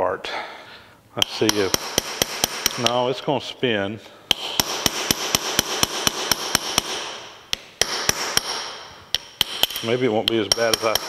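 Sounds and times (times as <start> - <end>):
hammer striking steel punch: 1.2 - 3.0, 4.3 - 11.0.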